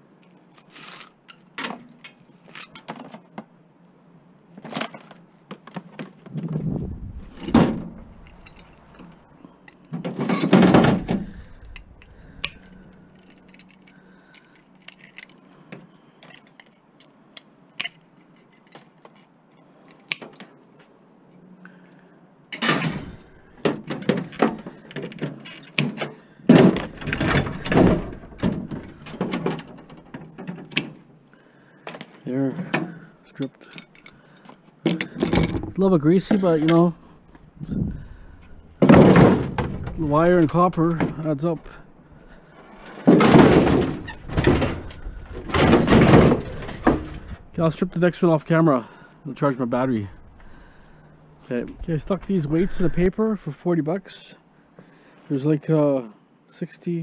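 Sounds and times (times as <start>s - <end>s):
metal parts and wires rattling: 4.6s - 15.6s, 22.5s - 31.0s, 32.6s - 48.4s.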